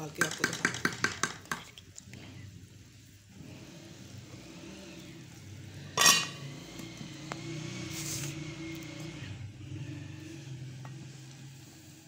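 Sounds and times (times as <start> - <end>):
metal lid scraping on pot: 5.9 - 6.4.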